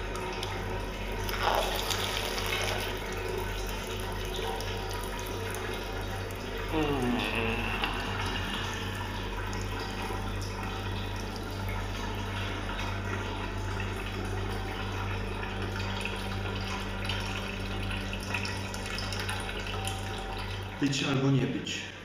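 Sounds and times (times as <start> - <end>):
water running: 0.0 - 21.9
low hum: 6.6 - 10.8.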